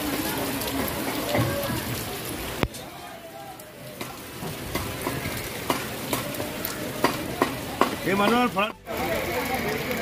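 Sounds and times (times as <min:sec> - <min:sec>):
heavy rain hissing: 0:00.0 - 0:10.0.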